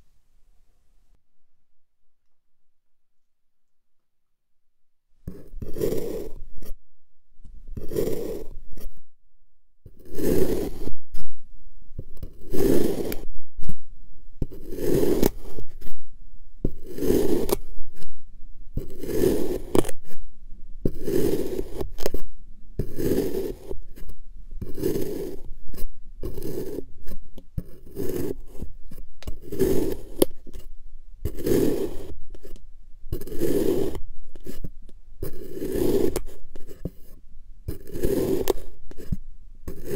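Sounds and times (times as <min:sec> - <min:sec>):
plastic blade cutting kinetic sand: 0:05.2 - 0:06.8, 0:07.7 - 0:09.0, 0:09.8 - 0:11.4, 0:12.0 - 0:13.8, 0:14.4 - 0:16.0, 0:16.6 - 0:39.9.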